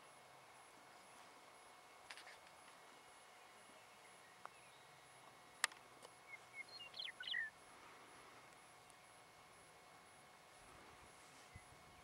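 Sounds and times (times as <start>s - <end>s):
faint outdoor hiss: 0.0s - 12.0s
bird chirping: 3.4s - 5.0s, 6.2s - 7.6s.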